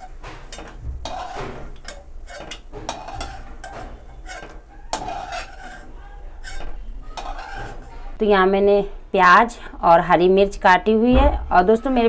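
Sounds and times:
steel spoon scraping metal pan: 0.0 - 8.2.

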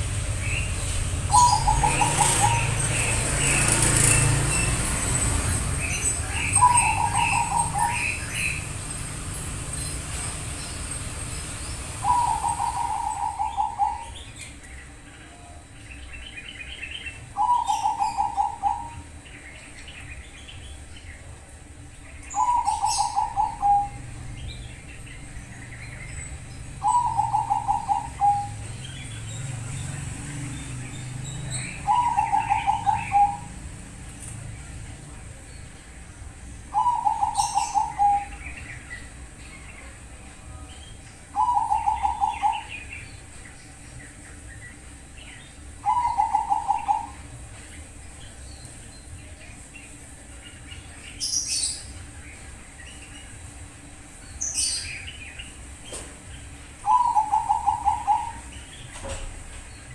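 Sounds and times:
dove cooing: 0.6 - 9.8, 11.9 - 14.5, 17.0 - 19.2, 22.3 - 24.2, 26.6 - 29.1, 31.5 - 33.9, 36.7 - 38.6, 41.3 - 43.0, 45.8 - 47.3, 56.8 - 59.4.

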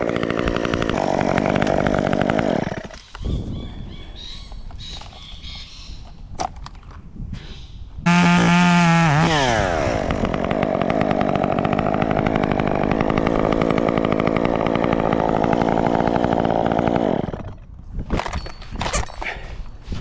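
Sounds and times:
chainsaw engine idling: 0.0 - 3.0, 8.1 - 17.7.

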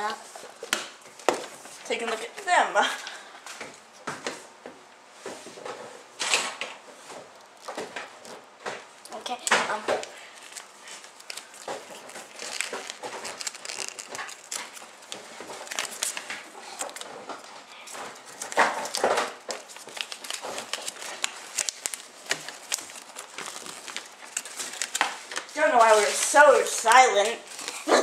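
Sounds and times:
packet crinkling and rustling: 6.2 - 28.0.

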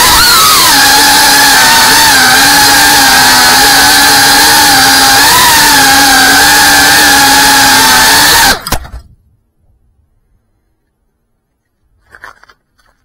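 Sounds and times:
drone motors whining: 0.0 - 8.8.

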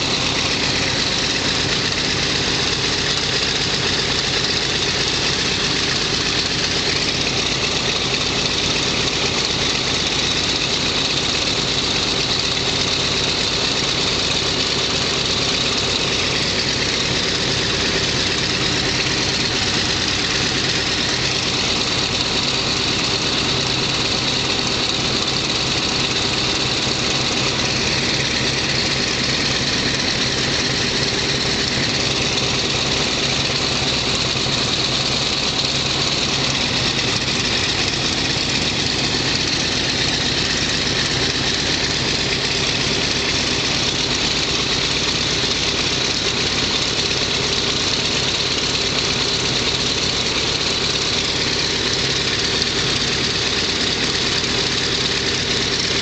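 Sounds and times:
radial engine idling: 0.0 - 56.0.

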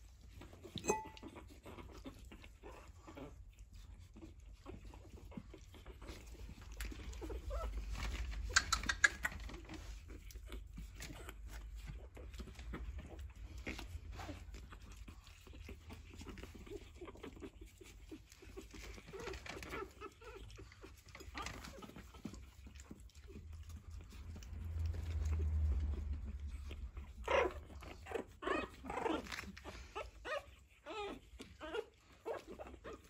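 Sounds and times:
puppy paws pattering on wood floor: 4.2 - 33.0
puppy squeaks: 7.1 - 9.9.

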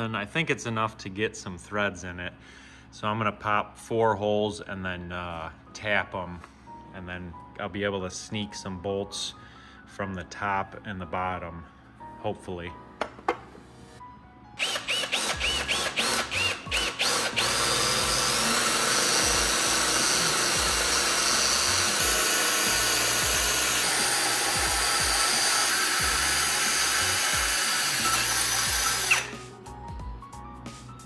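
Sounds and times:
power drill boring into steel: 14.6 - 29.4.

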